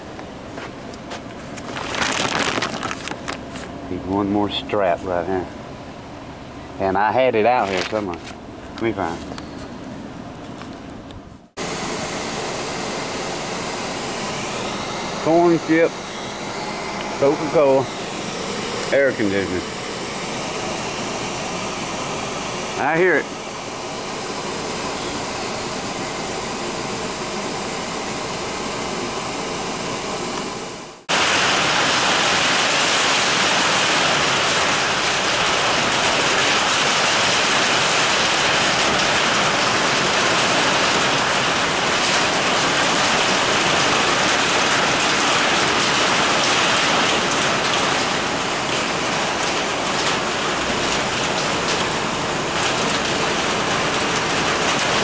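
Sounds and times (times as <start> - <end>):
heavy rain on metal roof: 31.1 - 55.0
rain hissing: 31.1 - 55.0.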